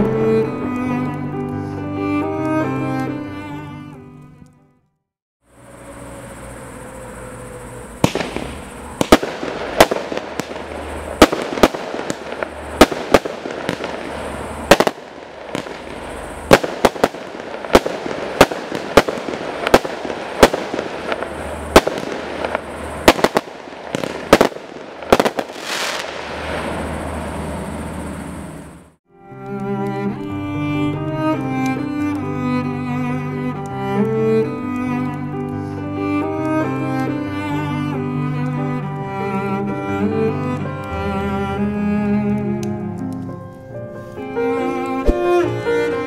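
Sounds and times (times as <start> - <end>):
firework sharp reports: 5.5 - 29.0, 45.0 - 45.6
firework crackle and hiss: 5.5 - 42.6, 43.2 - 46.0.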